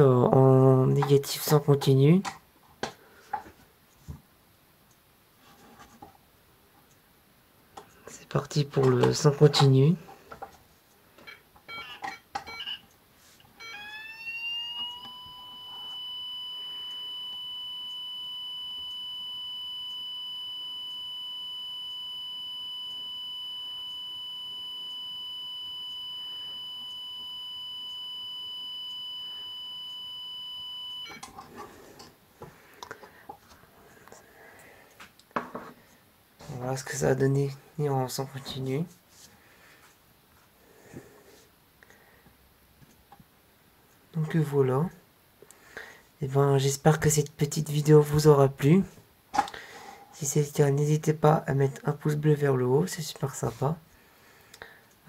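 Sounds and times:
fire alarm sounder tone: 11.3s - 12.8s, 13.6s - 31.3s.

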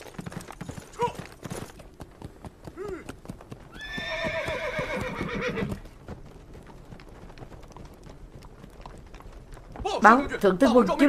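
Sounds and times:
hooves clopping on dirt: 0.0s - 11.0s
horse whinnying: 3.7s - 5.8s.

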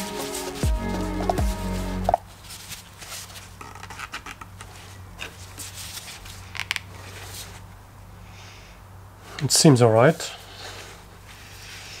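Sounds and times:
glove rustling: 0.0s - 7.8s.

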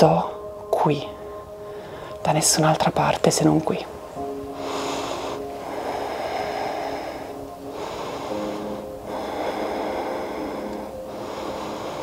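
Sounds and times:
soft background music: 0.0s - 12.0s
person breathing slowly: 1.2s - 2.2s, 4.5s - 12.0s.

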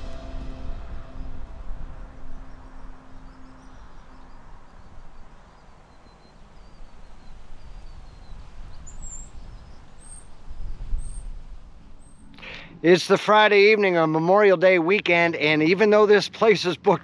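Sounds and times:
low background rumble: 0.0s - 13.0s
small birds chirping: 1.0s - 12.8s.

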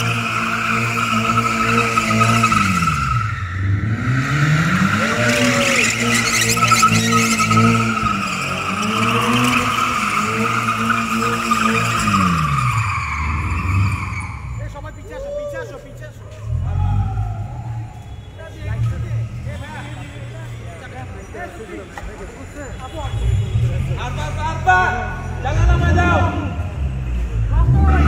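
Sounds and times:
car engine revving high: 0.0s - 14.4s
tyres squealing: 0.0s - 15.8s.

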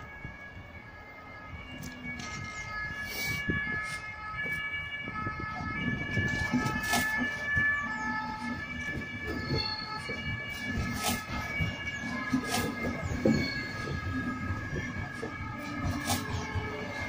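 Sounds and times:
wheels rumbling and knocking on rails: 0.0s - 17.0s
train running gear squealing: 6.2s - 17.0s.

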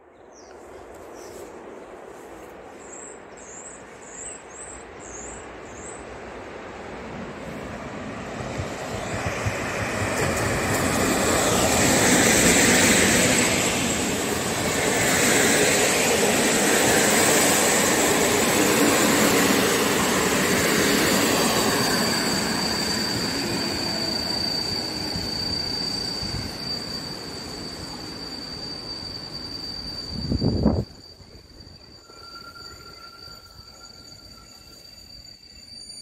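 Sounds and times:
train rumble and wheel noise: 0.0s - 36.0s
thin high whine: 10.2s - 36.0s.

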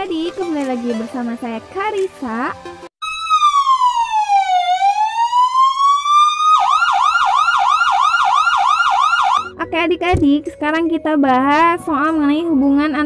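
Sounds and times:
electronic siren wailing and yelping: 3.0s - 9.6s.

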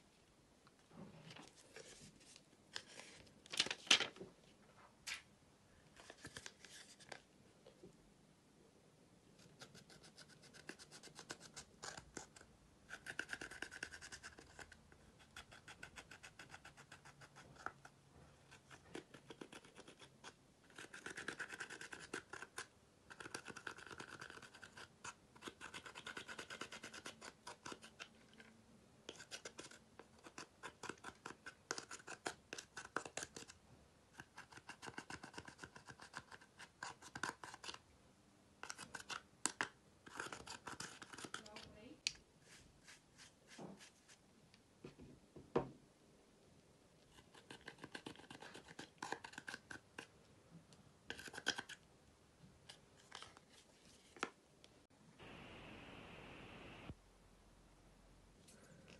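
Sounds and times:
metal tool scraping eyeshadow: 51.1s - 51.8s.

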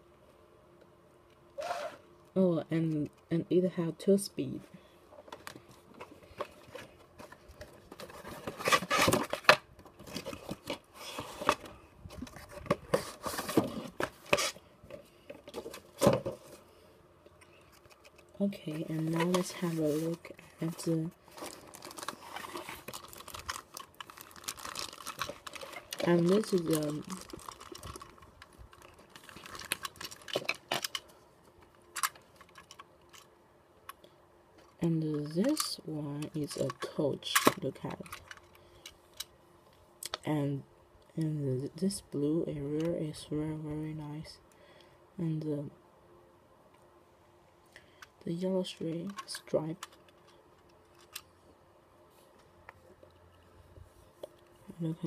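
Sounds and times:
cardboard box scraping and rustling: 8.0s - 11.6s
plastic bag crinkling: 18.7s - 31.1s.

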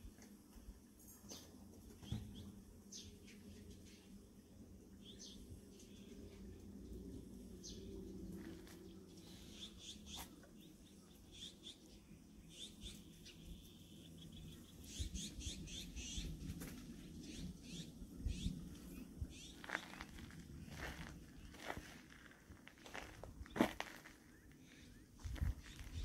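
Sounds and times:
small birds chirping: 1.0s - 4.2s, 4.8s - 26.0s
footsteps on gravel: 19.4s - 24.4s, 25.2s - 26.0s.

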